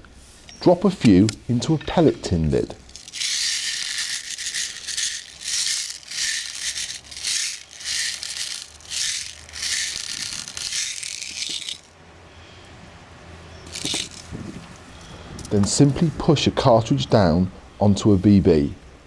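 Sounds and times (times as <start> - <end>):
bbs rattling in plastic bottle: 2.8 - 11.9, 13.7 - 14.4.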